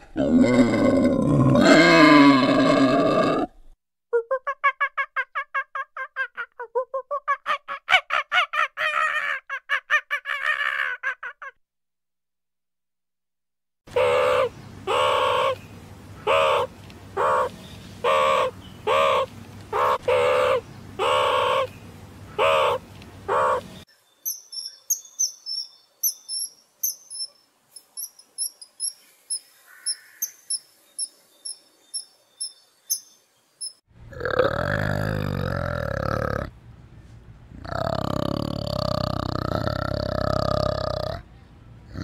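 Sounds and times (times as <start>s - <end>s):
high-pitched bird chirping: 23.4s - 33.9s.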